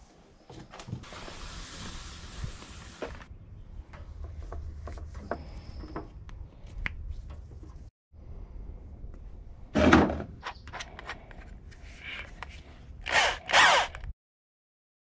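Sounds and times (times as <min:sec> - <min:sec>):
electric drill motor: 0:13.0 - 0:14.1.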